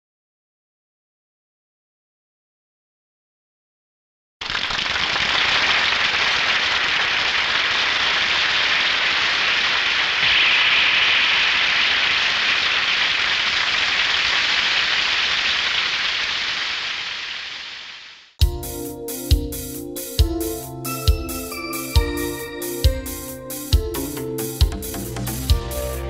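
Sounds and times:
rushing hiss: 4.6 - 18.4.

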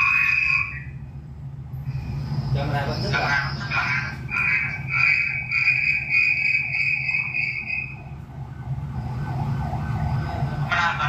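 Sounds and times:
feedback whistle: 0.0 - 1.0, 4.9 - 8.1.

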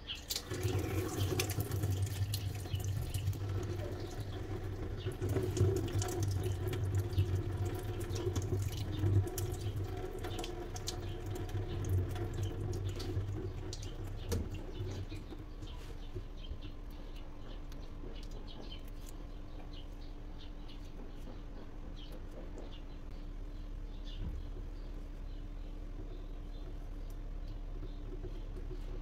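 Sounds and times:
tap water rushing: 0.1 - 16.3.

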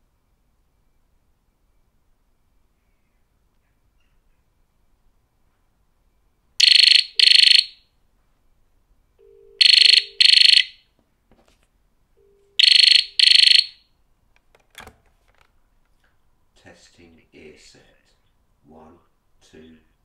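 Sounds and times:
handset lifted off cradle: 14.4 - 15.6.

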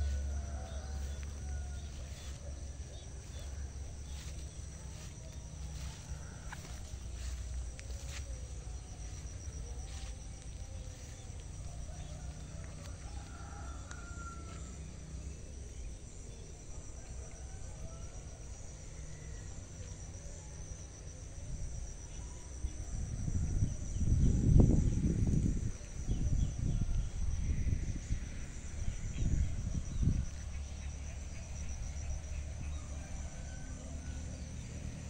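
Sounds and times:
insects chirring: 0.0 - 35.0
wind rumble on microphone: 21.4 - 35.0.

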